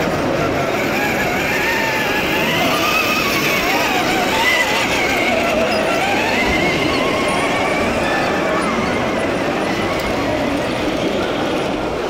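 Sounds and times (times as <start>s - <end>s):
background hubbub: 0.0s - 12.0s
model truck engine: 0.0s - 12.0s.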